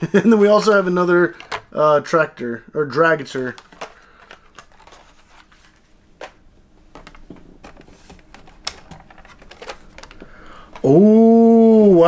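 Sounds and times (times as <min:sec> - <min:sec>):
plastic blister packs rustling: 0:03.0 - 0:06.4, 0:07.0 - 0:10.9.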